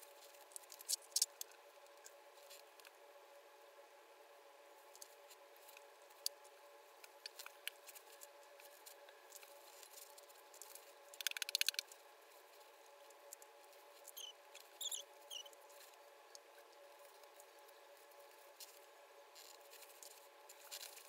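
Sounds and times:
steady low hum: 0:00.0 - 0:21.0
faint clicks: 0:11.2 - 0:11.9
rattle of sharp clicks: 0:11.2 - 0:11.9.

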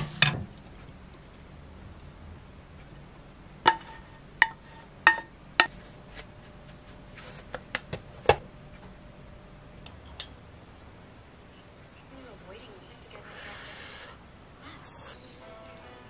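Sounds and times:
frying pan clinking on ceramic bowl: 0:03.7 - 0:05.7.

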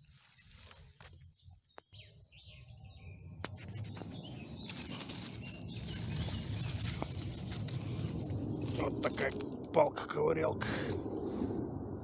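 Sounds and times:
rustling scraping noise: 0:00.0 - 0:01.2, 0:03.6 - 0:09.6
small birds chirping: 0:00.0 - 0:10.0.

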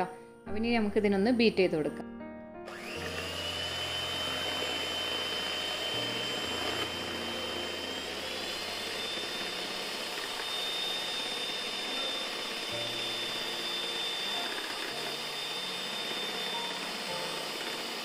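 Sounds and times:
electric hand mixer whining: 0:02.7 - 0:18.0.

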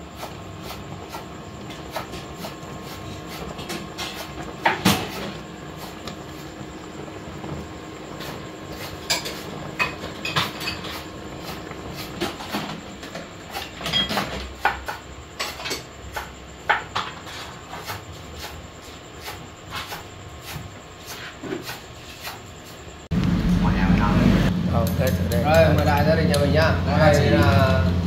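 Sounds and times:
knife utensils and dishes clinking: 0:13.5 - 0:16.3.

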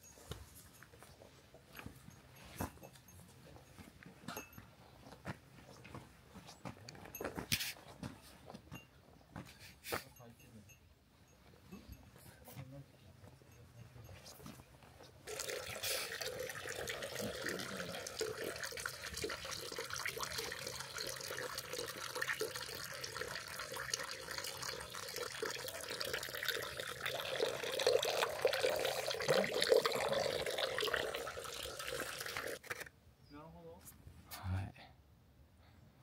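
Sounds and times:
running water splashing: 0:15.3 - 0:32.7.

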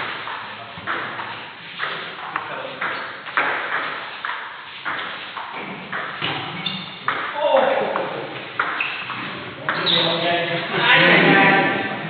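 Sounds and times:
ball bouncing on table: 0:00.3 - 0:09.9.

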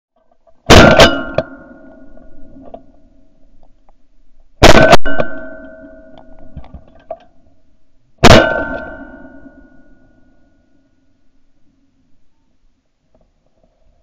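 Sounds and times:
shotgun shots: 0:00.7 - 0:01.6, 0:04.6 - 0:05.6, 0:08.2 - 0:09.2.

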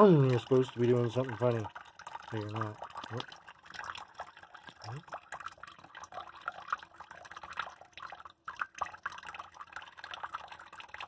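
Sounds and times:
tap water splashing into sink: 0:00.0 - 0:04.0.

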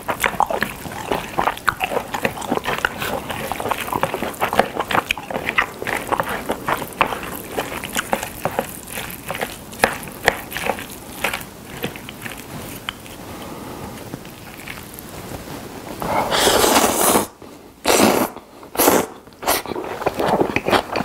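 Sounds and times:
noodles squelching: 0:00.0 - 0:13.7.

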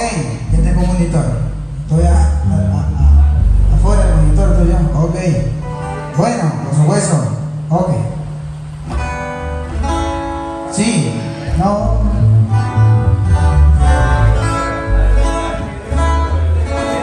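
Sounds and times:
electric bass line: 0:00.0 - 0:17.0
strummed acoustic guitars: 0:02.4 - 0:06.8, 0:08.8 - 0:17.0.

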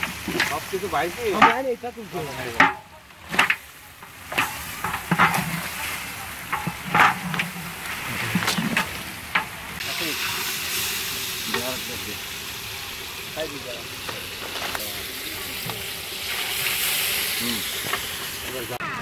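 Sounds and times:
wooden stick scraping pot: 0:00.0 - 0:09.6
meat sizzling: 0:00.0 - 0:19.0
water hissing in hot pot: 0:00.0 - 0:19.0.

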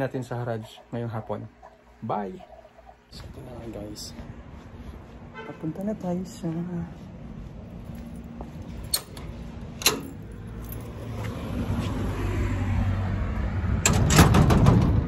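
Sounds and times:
keys jangling: 0:07.9 - 0:11.1.

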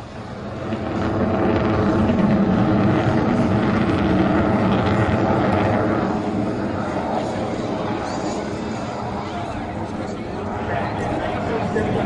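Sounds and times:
fighter jet engines roaring: 0:00.0 - 0:12.0.

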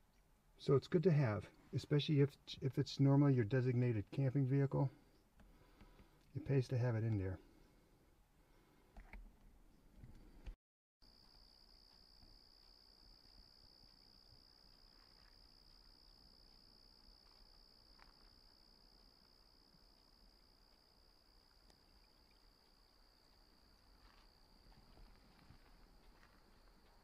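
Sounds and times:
insects trilling: 0:11.1 - 0:27.0.

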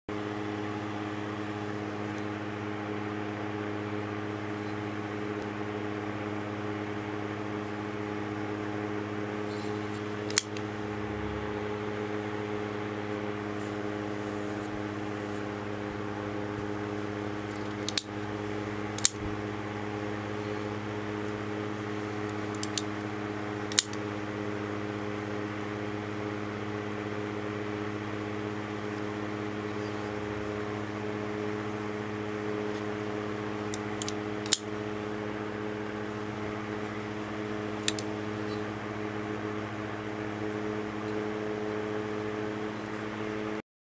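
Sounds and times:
steady electrical hum: 0:00.1 - 0:43.6
folding knife clicking: 0:10.3 - 0:10.6, 0:17.5 - 0:18.1, 0:19.0 - 0:19.2, 0:22.5 - 0:22.9, 0:23.7 - 0:24.0, 0:33.7 - 0:34.7, 0:37.8 - 0:38.1.

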